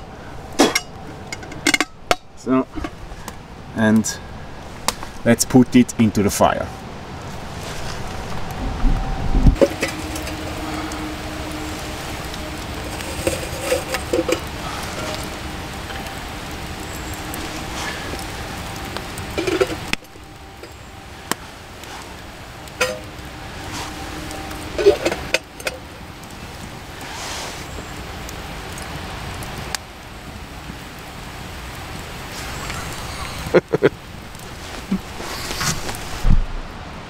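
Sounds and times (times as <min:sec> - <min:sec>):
background hiss: 0:09.5 - 0:37.0
firewood knocking on tin can: 0:09.6 - 0:10.5, 0:19.2 - 0:20.1, 0:22.8 - 0:23.2.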